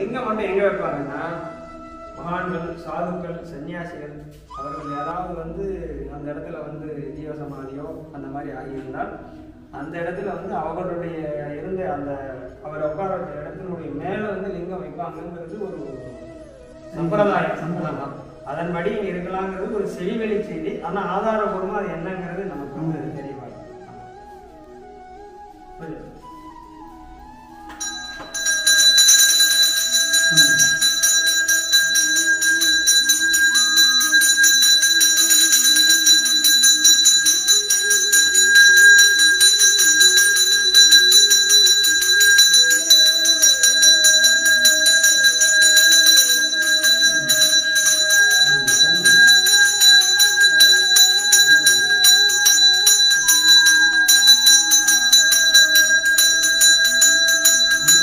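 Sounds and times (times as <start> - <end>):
soft wandering melody: 14.3 - 58.0
brass bell rung rapidly: 27.8 - 58.0.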